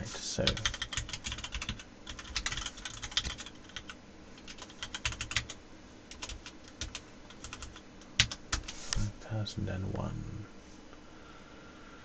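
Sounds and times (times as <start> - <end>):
computer keyboard typing: 0.4 - 8.8.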